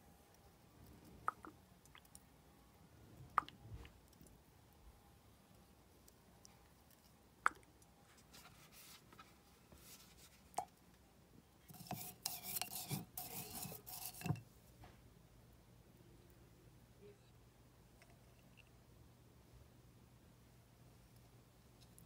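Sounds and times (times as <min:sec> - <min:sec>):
glass jar scraping and rubbing: 0:11.7 - 0:14.4.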